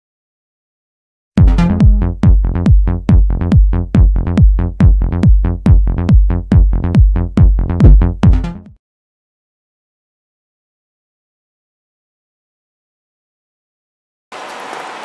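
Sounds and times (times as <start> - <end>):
kick drum beat: 1.4 - 8.6
electronic dance music: 1.4 - 8.7.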